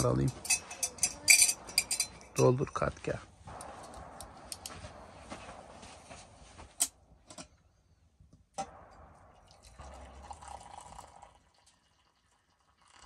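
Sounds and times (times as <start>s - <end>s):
glassware clinking: 0.3s - 2.2s
tea pouring into glass: 9.4s - 13.0s.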